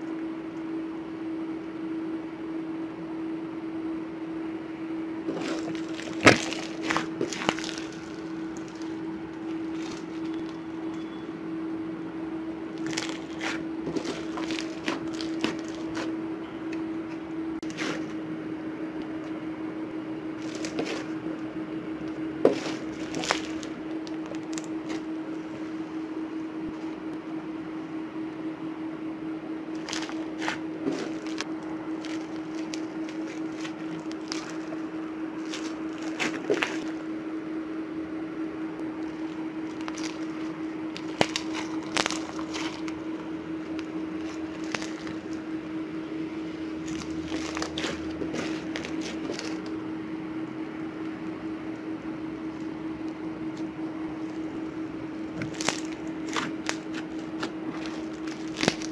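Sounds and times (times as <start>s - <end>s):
steady low hum: 0.0s - 58.9s
slime crackling and popping: 5.3s - 11.0s, 12.7s - 16.1s, 20.4s - 21.2s, 22.5s - 25.1s, 29.7s - 37.0s, 39.0s - 45.4s, 46.8s - 49.7s, 55.3s - 58.9s.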